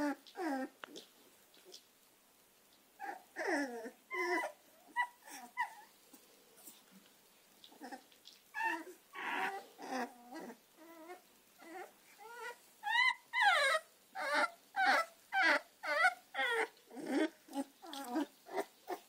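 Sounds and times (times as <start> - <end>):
puppies whimpering: 0.0 - 0.7, 3.0 - 5.9, 7.7 - 19.0.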